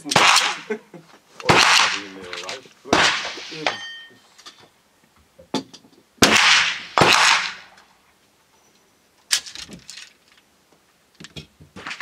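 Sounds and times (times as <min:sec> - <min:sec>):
gunshots: 0:00.0 - 0:00.7, 0:01.5 - 0:03.8, 0:06.2 - 0:07.7.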